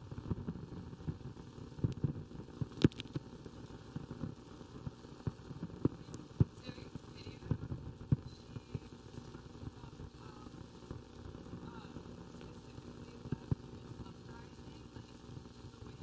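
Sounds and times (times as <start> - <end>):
faint voices: 5.9 - 16.0.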